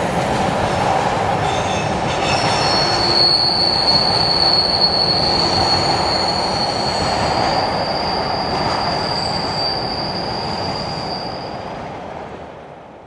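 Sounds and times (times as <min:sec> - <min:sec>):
rumble of rolling train cars: 0:00.0 - 0:13.0
train wheels squealing: 0:01.4 - 0:11.8.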